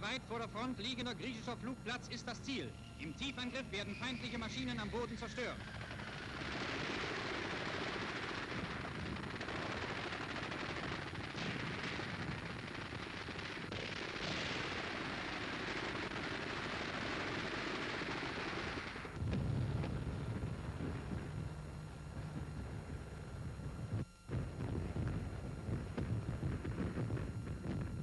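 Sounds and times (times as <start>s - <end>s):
aircraft engine drone: 0.0s - 28.0s
film soundtrack hiss: 0.0s - 28.0s
machine-gun fire: 5.0s - 21.3s.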